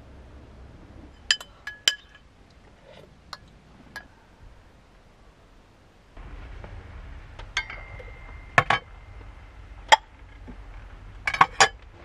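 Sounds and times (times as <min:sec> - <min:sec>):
dishes clinking: 0:01.2 - 0:02.2, 0:11.2 - 0:11.8
ringing clink: 0:07.6 - 0:09.0.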